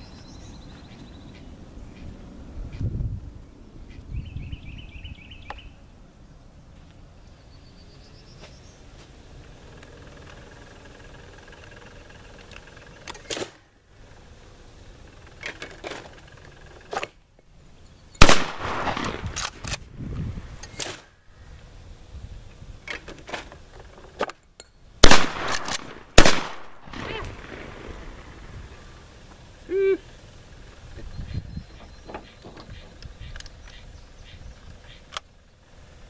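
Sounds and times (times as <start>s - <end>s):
shotgun shots echoing: 18.2s - 19.5s, 25.0s - 28.1s.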